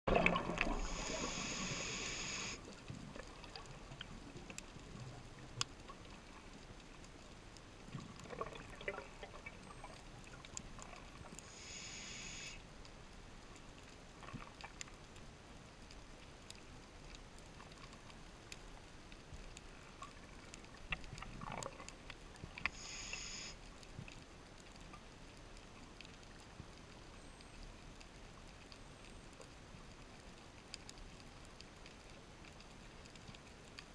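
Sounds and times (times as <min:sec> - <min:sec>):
exhaled bubbles underwater: 0:00.1 - 0:05.5, 0:08.1 - 0:11.1, 0:21.1 - 0:22.0
faint clicks and crackle: 0:00.1 - 0:33.9
diver inhaling through regulator: 0:00.8 - 0:02.6, 0:11.4 - 0:12.6, 0:22.7 - 0:23.6.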